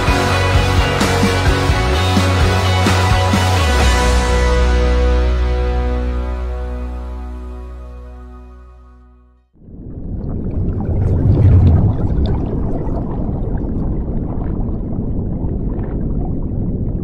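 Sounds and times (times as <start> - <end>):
deep underwater rumble: 9.6 - 17.0
underwater air bubbles rushing: 9.6 - 17.0.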